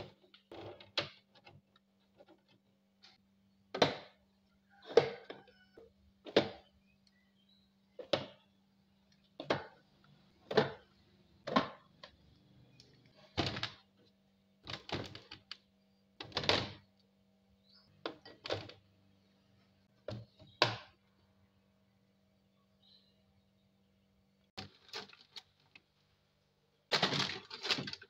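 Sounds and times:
low refrigerator hum: 0.0s - 28.0s.

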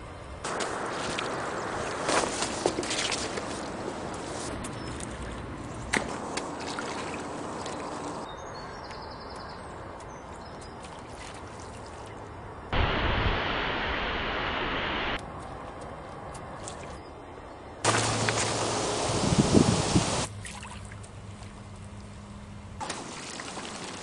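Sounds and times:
outdoor ambience by water: 0.0s - 24.0s
wind noise on microphone: 18.6s - 20.3s.

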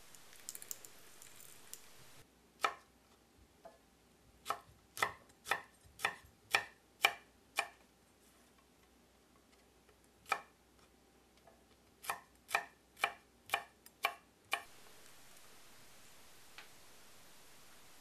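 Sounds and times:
soft hiss: 0.0s - 6.3s, 13.8s - 18.0s
knife chopping on wooden board: 4.4s - 7.8s.

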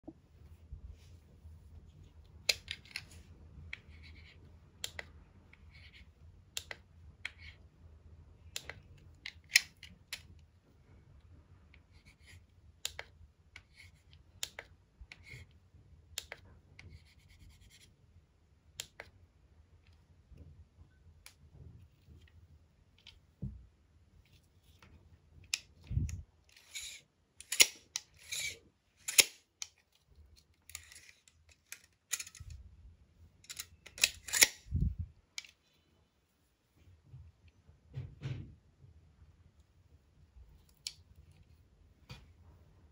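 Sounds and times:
scratching on writing screen: 16.8s - 18.0s.

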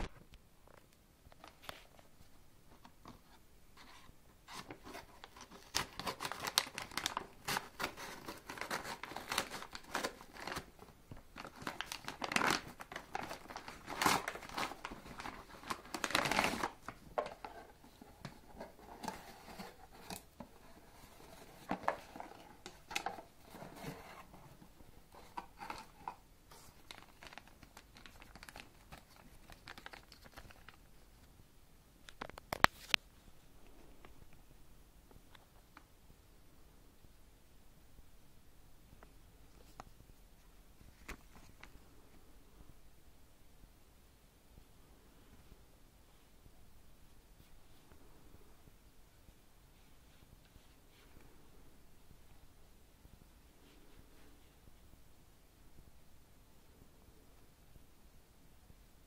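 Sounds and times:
plastic bag rustling: 3.8s - 30.9s
paper crinkling and tearing: 4.5s - 17.8s, 25.2s - 30.9s.

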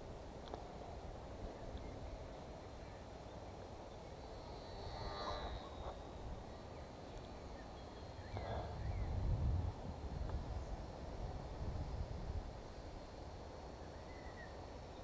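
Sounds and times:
model plane motor buzzing: 4.0s - 7.4s
wind rumble on microphone: 4.4s - 14.7s.

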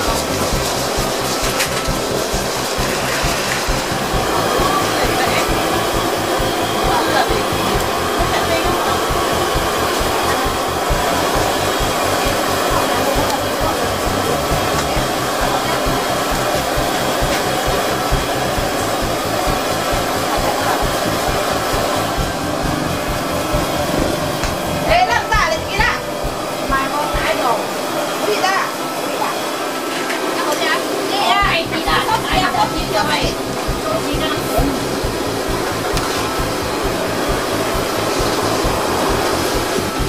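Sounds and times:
hot oil sizzling: 0.0s - 27.9s.

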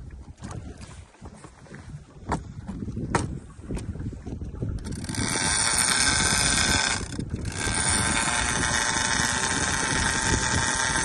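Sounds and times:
fishing reel spool whirring: 4.8s - 11.0s.

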